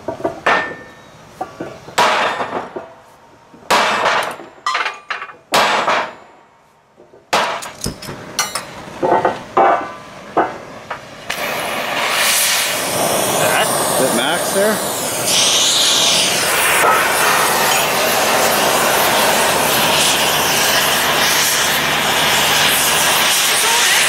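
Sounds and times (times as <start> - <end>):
sledgehammer striking steel: 2.0 - 2.8, 3.7 - 6.4
lighter metal clanks: 7.6 - 8.8
cutting torch hissing: 11.2 - 24.0.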